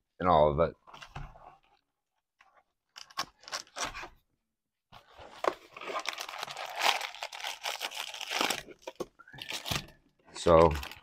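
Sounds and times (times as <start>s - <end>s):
wrapper crinkling and tearing: 5.6s - 10.0s, 10.6s - 11.0s.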